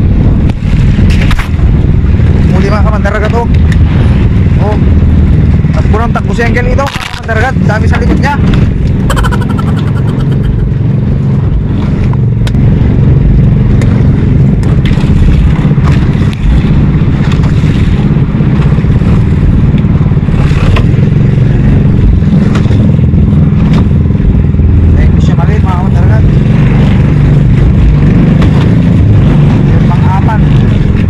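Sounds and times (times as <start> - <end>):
boat engine running: 0.0 - 31.0.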